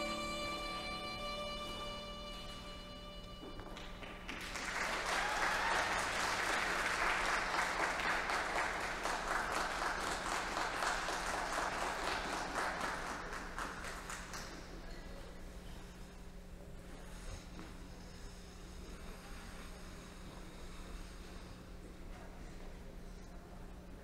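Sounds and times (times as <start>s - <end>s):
audience clapping: 3.6s - 15.0s.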